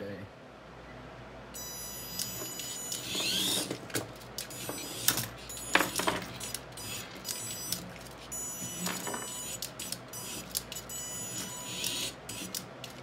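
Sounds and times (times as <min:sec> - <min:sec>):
toy car motor whining: 0:01.6 - 0:03.8, 0:04.4 - 0:13.0.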